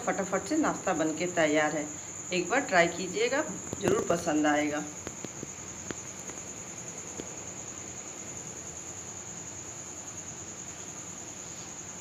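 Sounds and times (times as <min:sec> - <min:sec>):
crickets trilling: 0:00.0 - 0:12.0
faint background hiss: 0:00.0 - 0:12.0.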